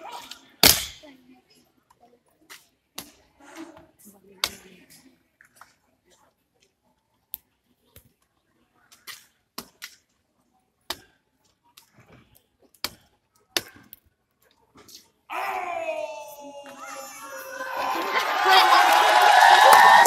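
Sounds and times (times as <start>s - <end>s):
crowd cheering and shouting: 15.3s - 20.0s.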